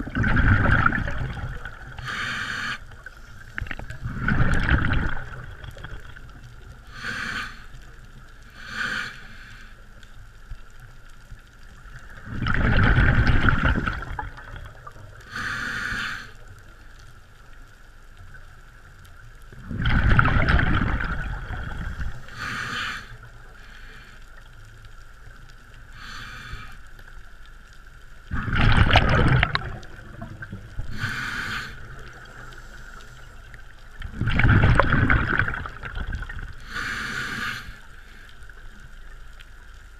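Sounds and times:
bubbling exhalations underwater: 0.0s - 2.2s, 3.7s - 6.2s, 12.2s - 15.1s, 19.6s - 22.2s, 28.3s - 31.5s, 34.0s - 36.9s
hissing inhalations: 2.0s - 3.7s, 6.9s - 7.8s, 8.5s - 9.8s, 15.3s - 16.4s, 21.8s - 24.4s, 26.0s - 26.9s, 30.8s - 33.6s, 36.6s - 38.4s.

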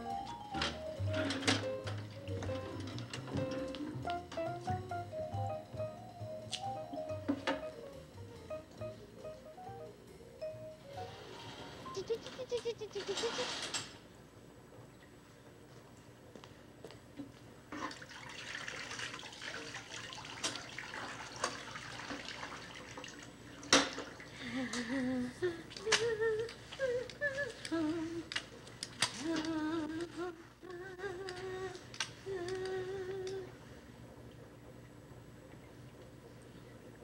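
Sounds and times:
woman humming a slow tune: 11.9s - 13.4s, 24.4s - 28.4s, 29.2s - 33.6s
wet mop scrubbing floor: 17.7s - 24.4s.

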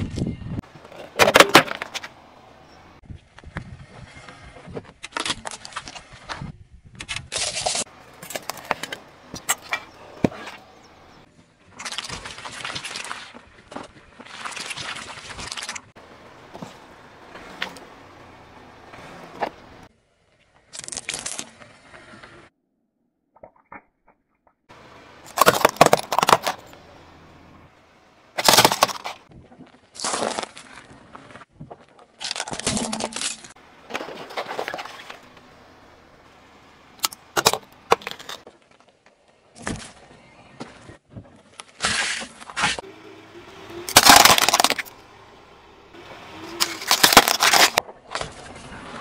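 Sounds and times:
tyre crushing objects: 0.6s - 2.2s, 7.3s - 11.2s, 11.8s - 19.9s, 25.2s - 27.0s, 28.4s - 35.4s, 43.9s - 45.0s, 46.2s - 48.6s.

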